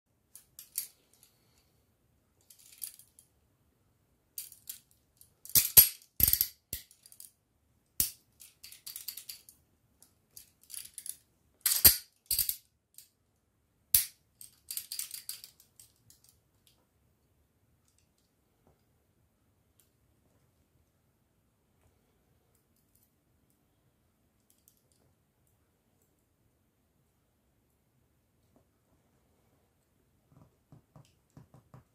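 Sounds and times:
handcuffs clicking and clinking: 0:00.4 - 0:01.3, 0:02.4 - 0:03.2, 0:04.4 - 0:07.3, 0:08.0 - 0:13.1, 0:14.0 - 0:16.7.

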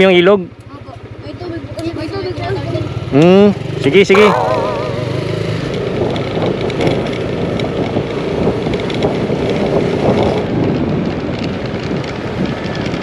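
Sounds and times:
scooter engine running: 0:00.8 - 0:09.9
wind noise on microphone: 0:04.2 - 0:13.0.

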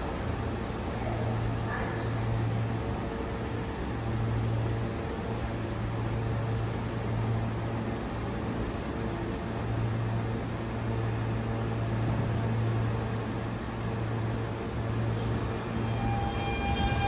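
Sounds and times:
subway train hum and rushing: 0:00.0 - 0:17.0
train ringing tones: 0:15.0 - 0:17.0.

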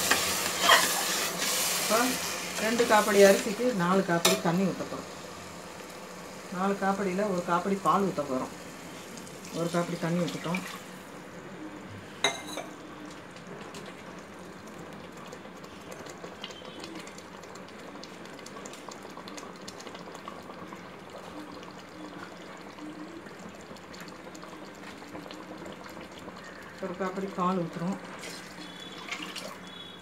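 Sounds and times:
sauce simmering and bubbling: 0:00.0 - 0:30.0.

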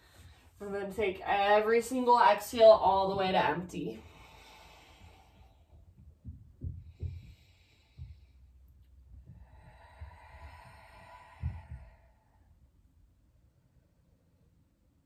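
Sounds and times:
woman breathing slowly: 0:00.0 - 0:00.6, 0:03.9 - 0:13.1
faint low thumps: 0:05.2 - 0:12.8.

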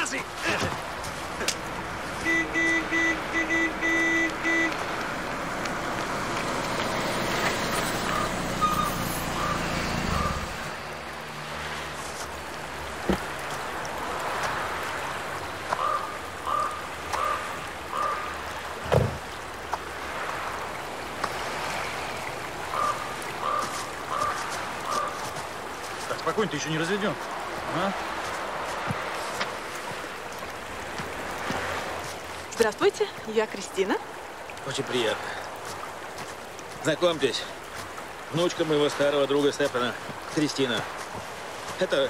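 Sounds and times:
car engines running: 0:00.0 - 0:42.0
car horn beeps: 0:02.2 - 0:04.8, 0:08.6 - 0:09.0.

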